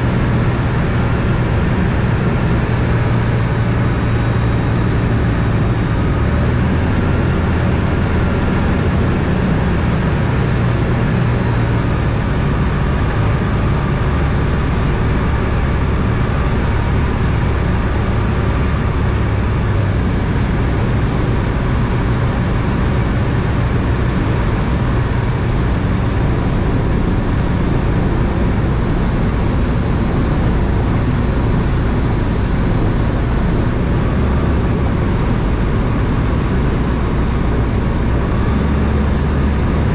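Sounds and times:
aircraft engine and propeller: 0:00.0 - 0:39.9.

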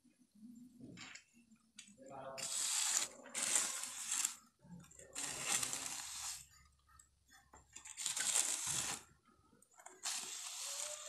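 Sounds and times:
trowel scraping wet concrete: 0:05.2 - 0:06.5.

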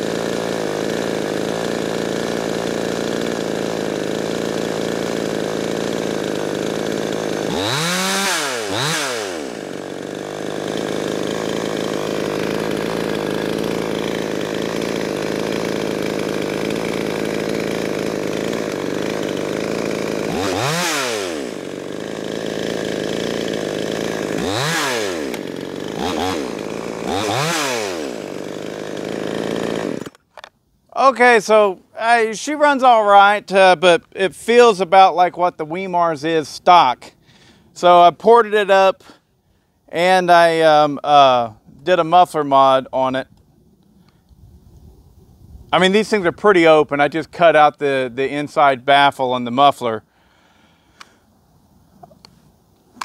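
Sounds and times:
chainsaw idling with throttle blips: 0:00.0 - 0:44.3.

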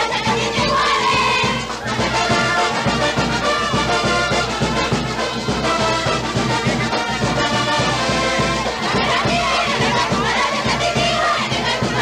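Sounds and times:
brass band horns: 0:00.0 - 0:12.0
steady drum beat: 0:00.0 - 0:12.0.

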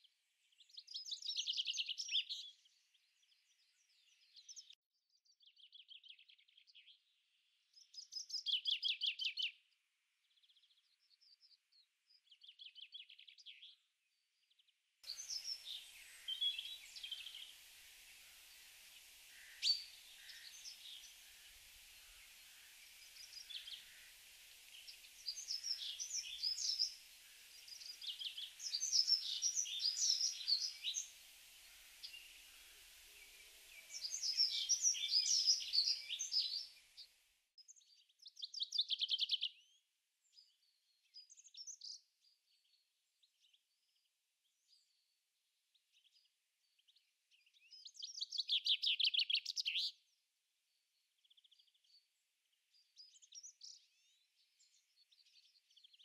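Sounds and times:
songbirds chirping: 0:00.0 - 0:56.0
steady hiss: 0:15.0 - 0:37.4
bird trill: 0:15.1 - 0:36.8.

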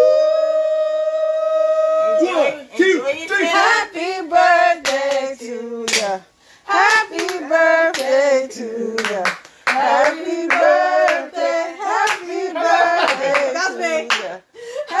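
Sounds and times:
high voices singing: 0:03.3 - 0:15.0
hand claps: 0:04.8 - 0:05.3, 0:05.9 - 0:06.2, 0:06.8 - 0:08.2, 0:09.0 - 0:11.2, 0:14.1 - 0:14.4.

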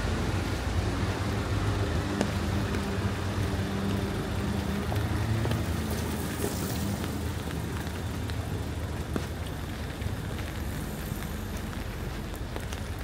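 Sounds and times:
car passing on wet street: 0:00.0 - 0:13.0
rain hiss: 0:00.0 - 0:13.0
tyres on wet road: 0:00.0 - 0:13.0.

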